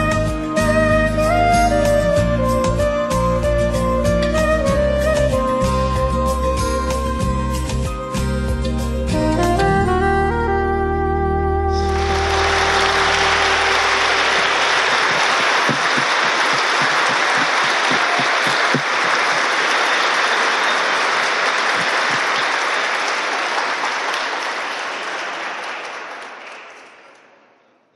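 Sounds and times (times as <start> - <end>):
crowd applauding: 11.8 - 27.4
single claps: 12.0 - 27.3.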